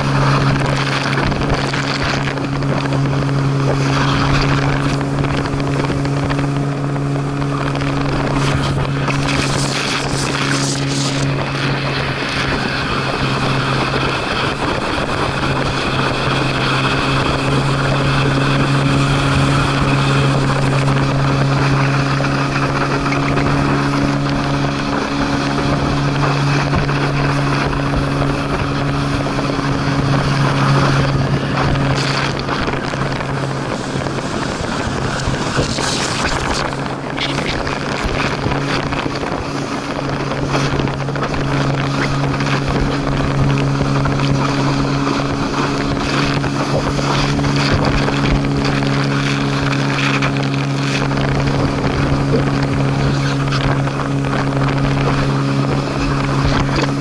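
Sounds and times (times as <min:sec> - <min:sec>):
boat engine droning: 0:00.0 - 0:57.0
rushing water spray: 0:00.0 - 0:57.0
wind: 0:00.0 - 0:57.0.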